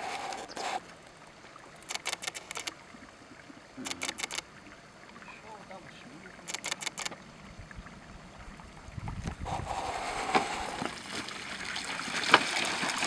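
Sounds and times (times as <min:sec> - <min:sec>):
stream running over stones: 0:00.0 - 0:13.0
sharp clicks: 0:01.8 - 0:02.8, 0:03.8 - 0:04.4, 0:06.4 - 0:07.2.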